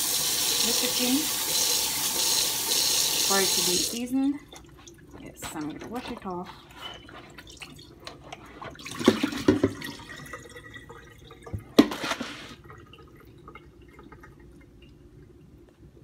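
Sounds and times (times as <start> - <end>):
water splashing in a container: 7.4 - 15.0.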